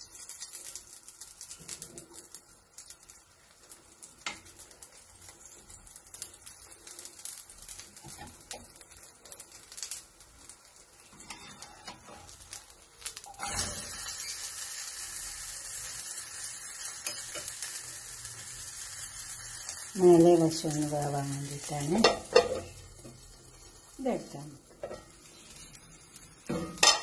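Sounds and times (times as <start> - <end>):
pancake sizzling in a pan: 0.0 - 27.0.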